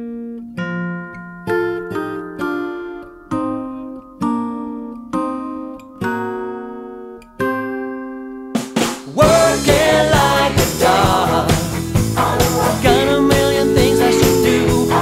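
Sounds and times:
guitar chords ringing: 0:00.0 - 0:08.8, 0:12.6 - 0:15.0
rock band with drums and singer: 0:08.6 - 0:15.0.

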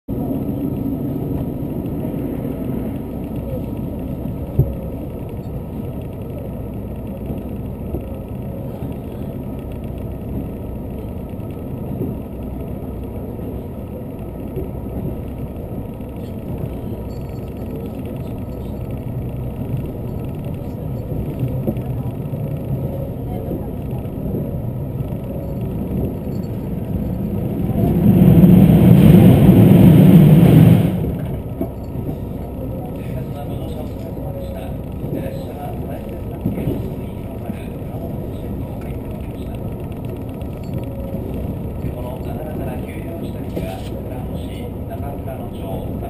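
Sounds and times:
train wheels rumbling on rails: 0:00.1 - 0:46.0.

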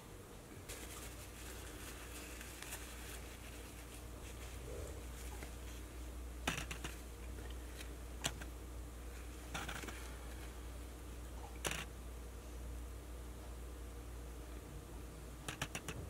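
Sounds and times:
steady low hum: 0:00.0 - 0:16.0
paper towel crinkles and clicks: 0:00.7 - 0:08.5.

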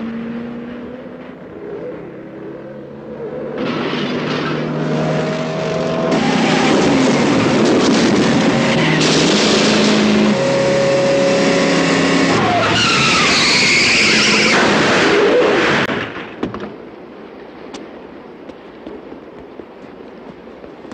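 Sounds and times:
car engines revving hard: 0:00.0 - 0:16.0
tyres screeching: 0:12.0 - 0:15.8
tyre noise: 0:17.7 - 0:20.9.

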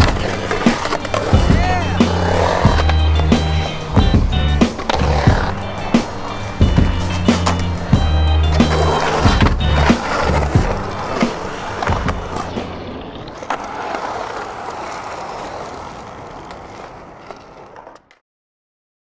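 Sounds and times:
music with bass line: 0:00.0 - 0:12.7
skateboard clacks and impacts: 0:00.0 - 0:18.1
skateboard wheels rolling on concrete: 0:00.0 - 0:18.2.

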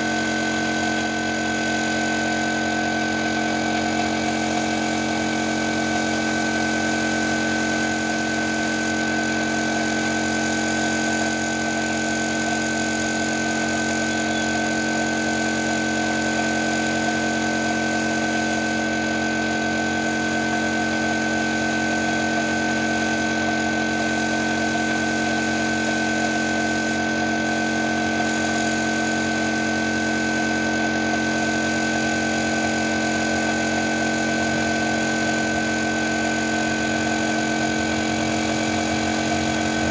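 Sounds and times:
air compressor humming: 0:00.0 - 0:39.9
spray gun hissing: 0:00.1 - 0:01.1, 0:03.8 - 0:17.2, 0:17.8 - 0:18.8, 0:23.9 - 0:29.3, 0:36.8 - 0:39.9.

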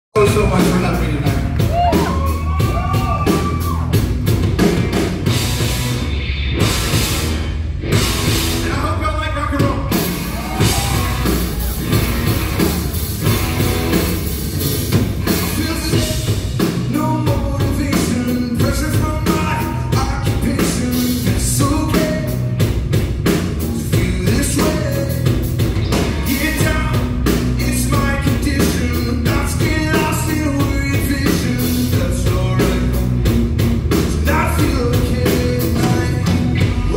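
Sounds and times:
electric bass: 0:00.1 - 0:36.9
drum kit beat: 0:00.2 - 0:36.9
man singing into microphone: 0:15.4 - 0:16.3, 0:16.9 - 0:22.4, 0:23.8 - 0:25.3, 0:26.3 - 0:33.1, 0:34.1 - 0:36.9.

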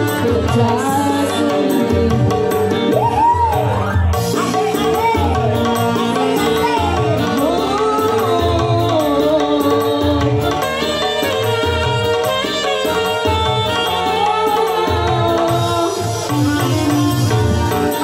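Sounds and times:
women singing: 0:00.0 - 0:03.3, 0:04.3 - 0:10.8
hand drum rhythm: 0:00.0 - 0:18.0
keyboard backing: 0:00.0 - 0:18.0.

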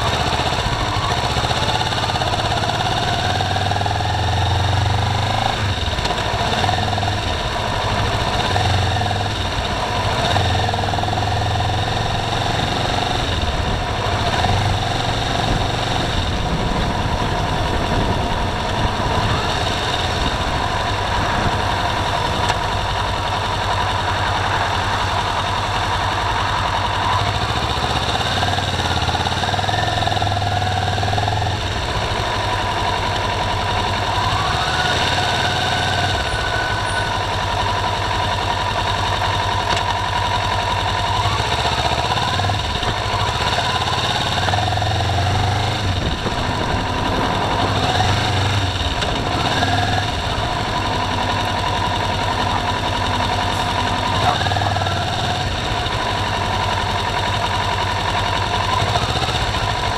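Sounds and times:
car engine running: 0:00.0 - 0:59.9
tyres on wet road: 0:00.0 - 0:59.9.

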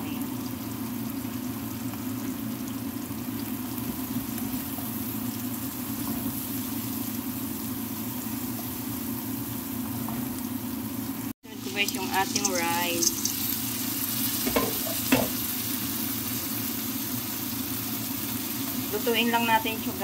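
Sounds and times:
vegetables sizzling in oil: 0:00.0 - 0:20.0
wooden spatula stirring: 0:11.6 - 0:13.4.

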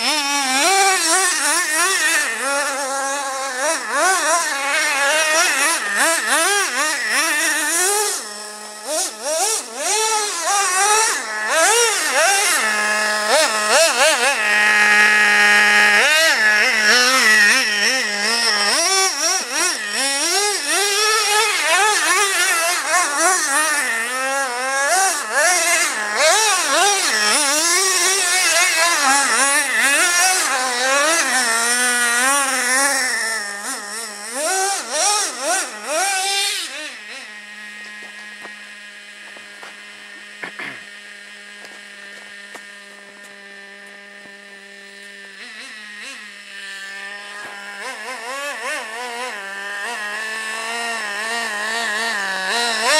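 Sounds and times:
small two-stroke engine revving: 0:00.0 - 0:52.9.

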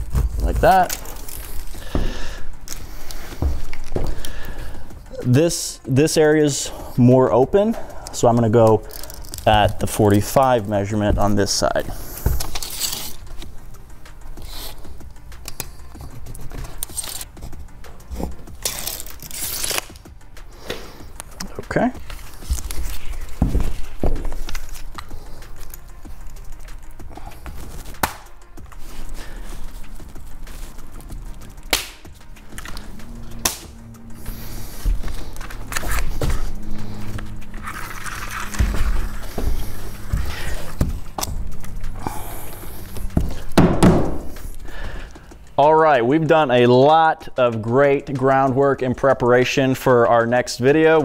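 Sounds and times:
background music: 0:00.0 - 0:51.0
work boots scuffing: 0:01.5 - 0:04.6, 0:09.5 - 0:12.5, 0:22.4 - 0:24.5, 0:38.4 - 0:41.2
tape measure retracting rattle: 0:12.4 - 0:13.3
chalk line snapping: 0:31.6 - 0:33.8.

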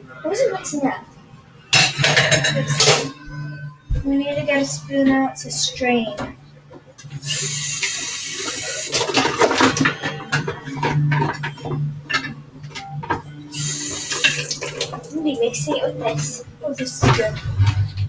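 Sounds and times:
faucet running into a cup: 0:07.2 - 0:09.3, 0:13.5 - 0:15.2.

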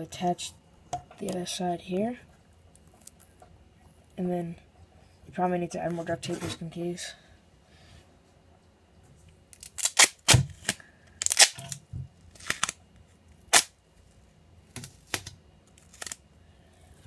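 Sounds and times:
duct tape ripping: 0:09.5 - 0:12.8, 0:13.5 - 0:13.8, 0:14.8 - 0:16.2.

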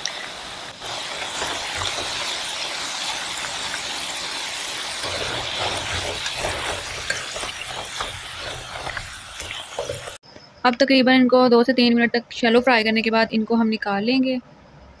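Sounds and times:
fries sizzling in hot oil: 0:00.0 - 0:10.2
oil crackling and popping: 0:00.0 - 0:10.2.

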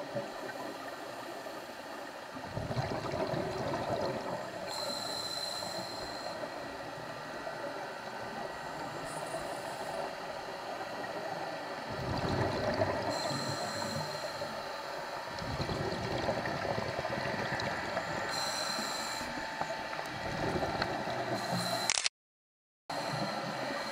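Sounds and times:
steady water hiss: 0:00.0 - 0:21.9
regulator breathing underwater: 0:11.9 - 0:14.7.

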